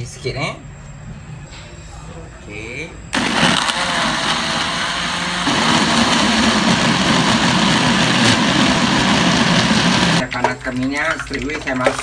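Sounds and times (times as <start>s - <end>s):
blender motor running: 3.2s - 10.2s.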